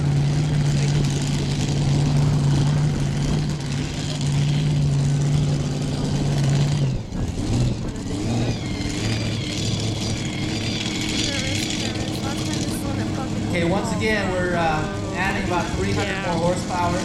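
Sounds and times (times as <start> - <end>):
tractor engine idling: 0.0 - 17.0.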